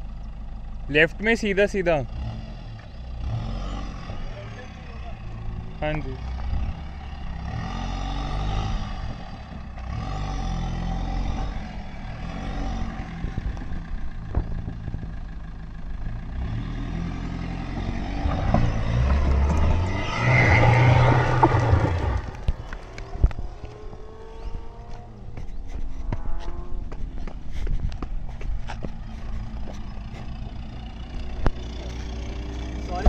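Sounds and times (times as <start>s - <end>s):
car engine revving hard: 6.2s - 13.1s, 16.4s - 25.0s.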